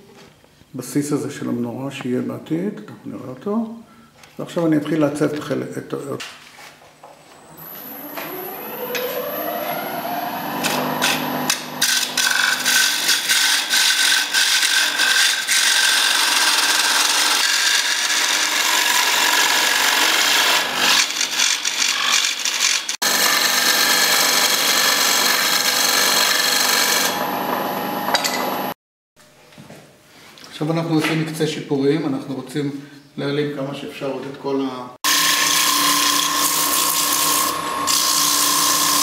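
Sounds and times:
wood lathe spinning up: 7.5s - 28.8s, 35.1s - 39.0s
turning tool scraping wood: 10.5s - 27.2s, 35.1s - 39.0s.

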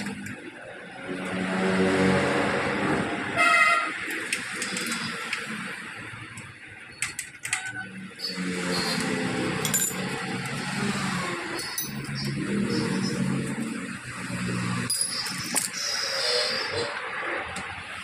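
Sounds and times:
background traffic: 0.0s - 18.0s
vehicle horn toot: 3.4s - 4.0s.

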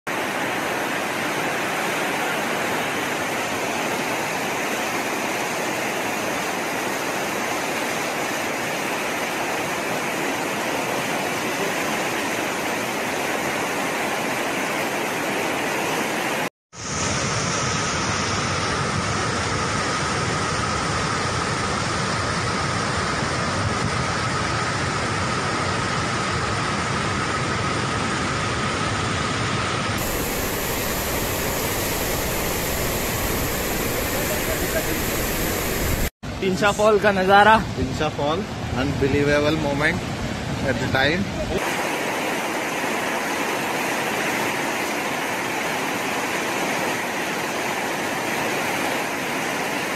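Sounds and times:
floodwater rushing: 0.1s - 16.9s, 30.0s - 36.1s, 39.8s - 49.9s.

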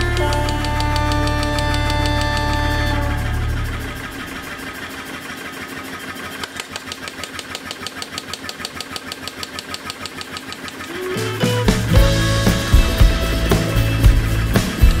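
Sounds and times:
power hammer striking hot steel: 0.0s - 3.2s
music: 0.0s - 3.9s, 10.9s - 15.0s.

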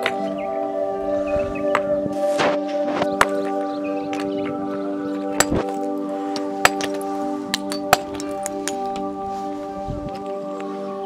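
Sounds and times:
background music: 0.0s - 11.0s
hammer striking stone: 5.4s - 5.8s, 6.6s - 8.8s.

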